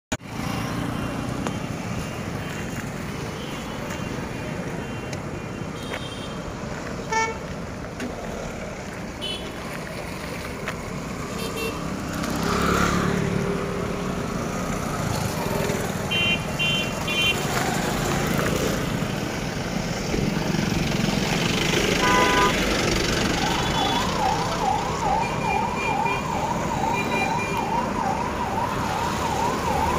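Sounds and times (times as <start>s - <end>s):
street traffic: 0.1s - 29.9s
vehicle horn toots: 7.1s - 7.4s, 22.0s - 22.6s.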